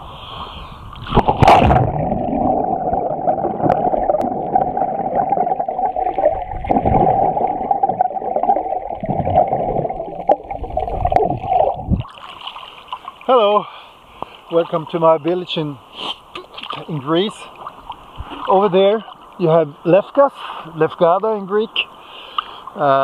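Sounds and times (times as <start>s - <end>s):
muffled underwater rushing: 0.9s - 12.1s
breath bubbles gurgling: 1.0s - 12.2s
splash into water: 1.1s - 2.2s.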